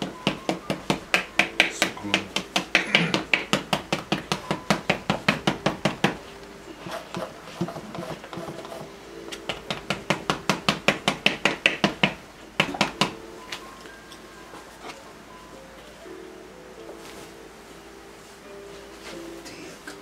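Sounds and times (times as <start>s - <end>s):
brush tapping on canvas: 0.0s - 6.2s, 6.9s - 13.2s.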